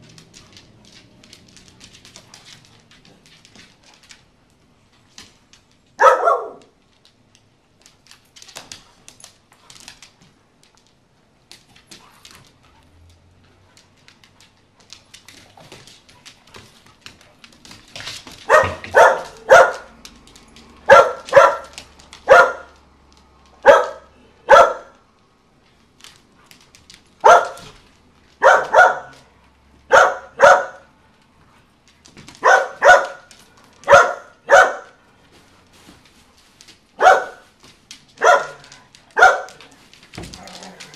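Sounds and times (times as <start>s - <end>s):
dog barking: 6.0s - 6.7s, 18.4s - 20.0s, 20.8s - 22.8s, 23.6s - 25.0s, 27.2s - 27.7s, 28.4s - 29.2s, 29.9s - 30.9s, 32.4s - 35.0s, 37.0s - 37.4s, 38.2s - 39.6s.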